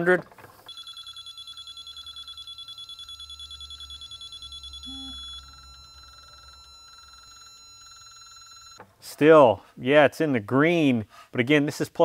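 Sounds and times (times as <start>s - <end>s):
steady alert tone: 0.7s - 8.8s.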